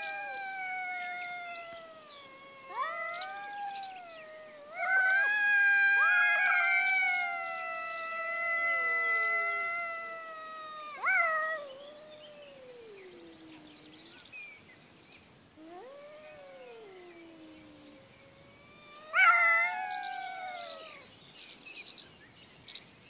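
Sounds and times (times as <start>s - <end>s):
cats yowling: 0.0s - 14.0s, 15.6s - 21.1s.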